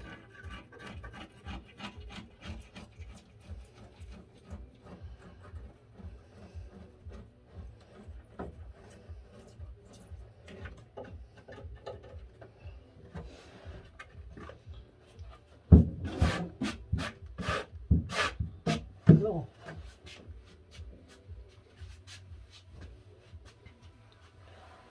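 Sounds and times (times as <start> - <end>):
craft knife scratching cork: 0.0 - 11.0, 15.3 - 18.9.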